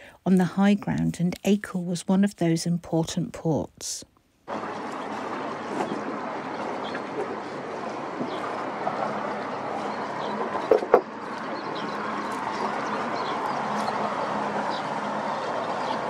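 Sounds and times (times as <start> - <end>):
riverside background noise: 0.0 - 16.0
oars knocking in rowlocks: 4.6 - 14.0.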